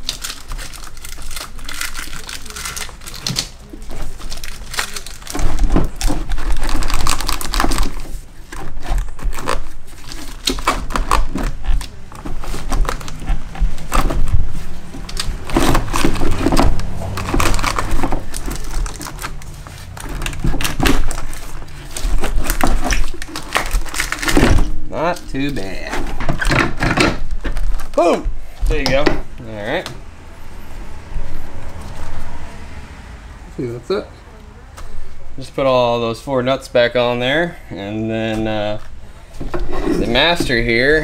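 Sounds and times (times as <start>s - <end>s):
metal housing clattering and scraping: 39.4s - 41.0s.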